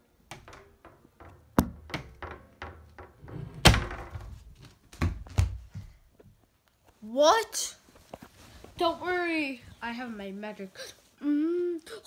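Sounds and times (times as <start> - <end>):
door thumps: 0.3 - 5.6.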